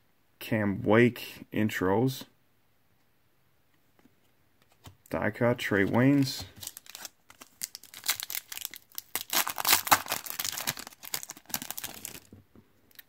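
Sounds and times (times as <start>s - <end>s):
foil wrapper crinkling and tearing: 6.5s - 12.3s.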